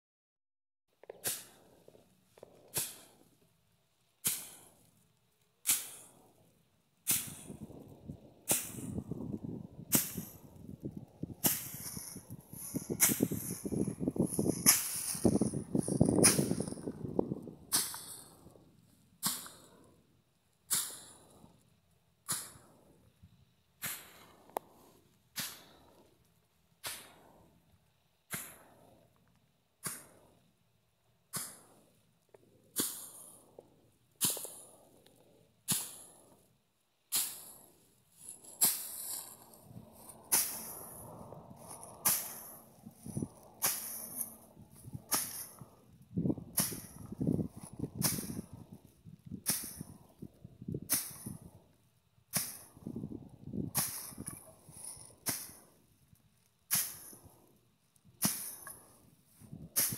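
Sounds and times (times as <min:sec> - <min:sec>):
dry stalks rustling: 0:07.2 - 0:18.3, 0:38.1 - 0:50.3
stick cracks beating crop: 0:08.5 - 0:09.2, 0:09.9 - 0:10.4, 0:11.3 - 0:17.1, 0:41.6 - 0:45.6, 0:46.5 - 0:48.7.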